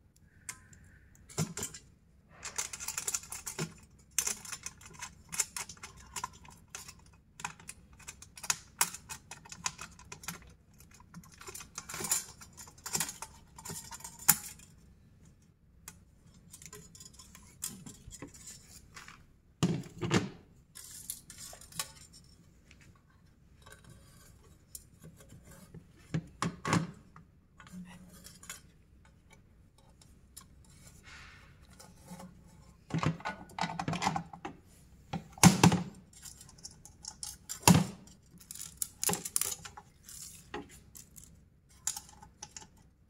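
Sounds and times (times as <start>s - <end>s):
metallic clicks and clatter: 0.4s - 19.2s, 20.0s - 22.4s, 35.2s - 43.0s.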